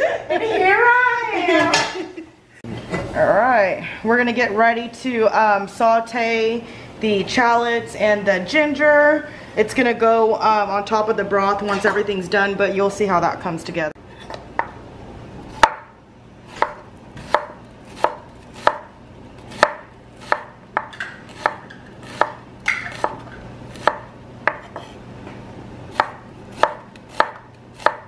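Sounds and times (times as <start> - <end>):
knife chopping on wooden board: 15.5 - 15.9, 16.5 - 25.0, 25.9 - 28.0.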